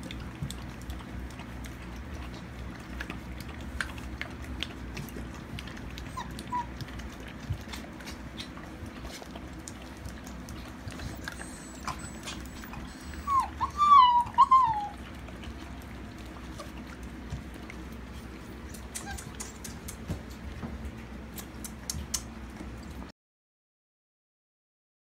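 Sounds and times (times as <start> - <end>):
steady low hum: 0.0 - 23.1
puppy squeak: 6.1 - 6.8, 11.1 - 15.0, 18.9 - 19.6.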